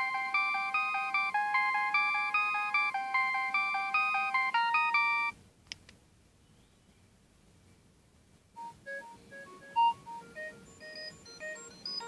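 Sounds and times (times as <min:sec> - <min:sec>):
polyphonic phone ringtone: 0:00.0 - 0:05.4, 0:08.6 - 0:12.0
faint click: 0:05.6 - 0:06.0.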